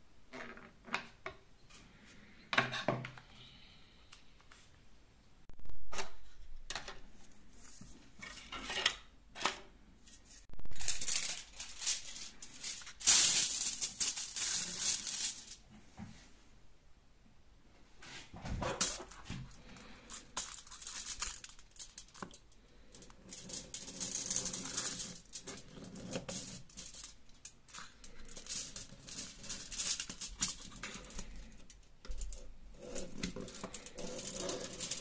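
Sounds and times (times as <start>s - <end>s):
aluminium foil crinkling: 10.7s - 15.6s, 18.7s - 35.0s.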